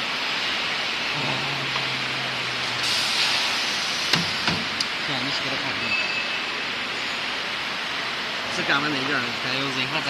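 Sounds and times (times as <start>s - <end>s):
workshop hiss: 0.0s - 10.0s
low hum: 1.0s - 5.3s.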